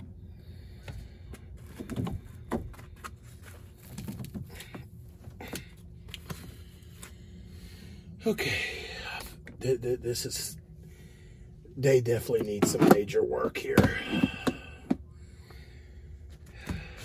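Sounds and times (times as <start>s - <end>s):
steady low hum: 0.0s - 17.0s
plastic pipe knocking and scraping: 1.6s - 3.2s.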